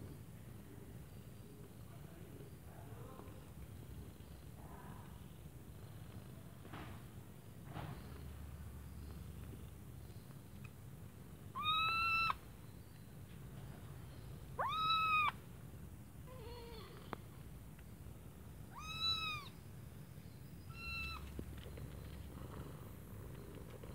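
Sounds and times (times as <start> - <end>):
kitten meowing: 11.5 - 12.4, 14.6 - 15.4, 18.7 - 19.6, 20.7 - 21.4.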